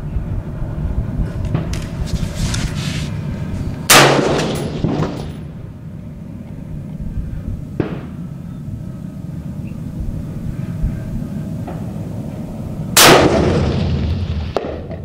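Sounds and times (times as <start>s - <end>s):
low rumble: 0.0s - 15.0s
rifle shot: 3.9s - 5.4s, 13.0s - 15.0s.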